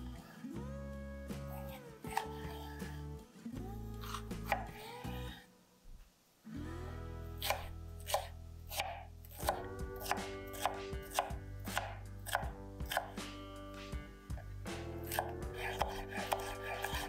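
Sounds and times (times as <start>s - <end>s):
knife chopping on cutting board: 4.0s - 4.7s, 7.4s - 13.3s, 14.7s - 17.0s.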